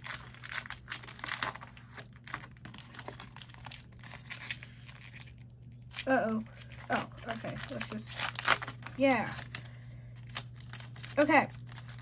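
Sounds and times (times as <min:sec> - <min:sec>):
foil wrapper crinkling: 0:00.0 - 0:12.0.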